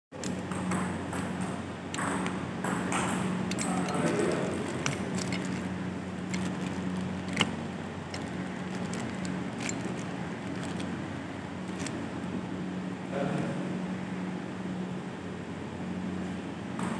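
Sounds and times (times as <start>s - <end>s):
steady low hum: 0.1s - 16.9s
table tennis ball clicking: 0.2s - 11.0s.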